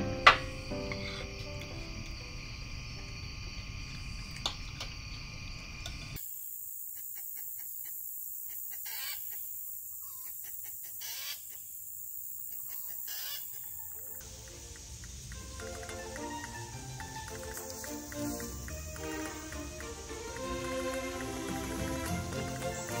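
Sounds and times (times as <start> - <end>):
steady high hiss: 0.0 - 23.0
chickens clucking: 7.0 - 23.0.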